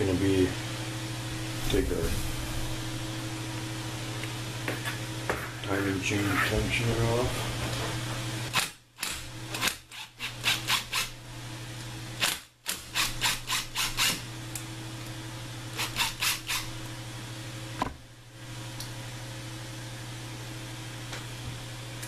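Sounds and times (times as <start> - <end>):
steady fan hum: 0.0 - 22.0
cordless driver bursts: 12.2 - 14.2.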